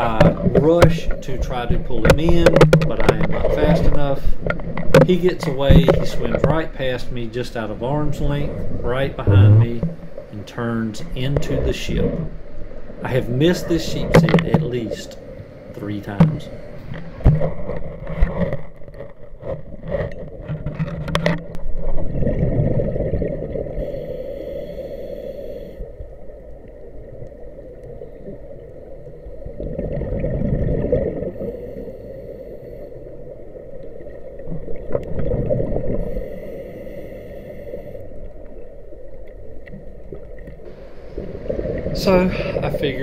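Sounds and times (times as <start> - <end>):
underwater rumble: 0.0 - 43.0
gurgling exhaled bubbles: 8.1 - 10.1, 21.6 - 24.2, 29.3 - 31.8, 33.7 - 36.3
regulator hiss: 23.8 - 26.0, 36.0 - 38.1.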